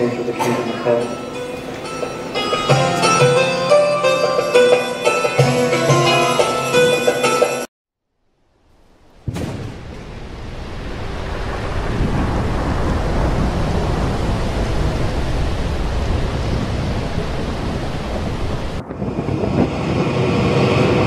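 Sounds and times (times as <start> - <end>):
wind and rain roar: 8.2 - 21.0
deep rolling thunder: 9.0 - 21.0.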